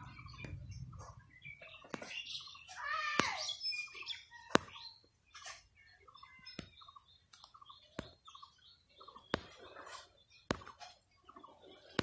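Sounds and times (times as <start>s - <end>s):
faint bird chirps: 0.0s - 12.0s
hen pecking taps: 4.5s - 4.8s, 6.2s - 11.0s.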